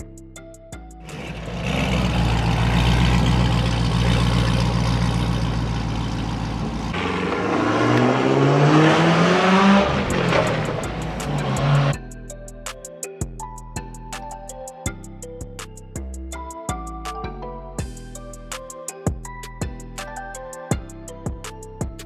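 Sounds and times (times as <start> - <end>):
car engine revving: 1.0 - 12.0.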